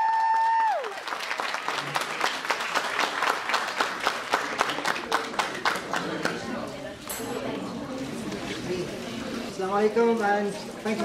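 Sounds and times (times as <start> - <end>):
audience applauding: 0.0 - 6.5.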